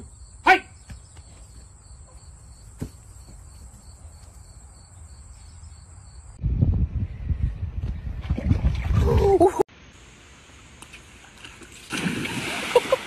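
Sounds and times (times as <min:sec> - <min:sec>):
insects droning: 0:00.0 - 0:06.4.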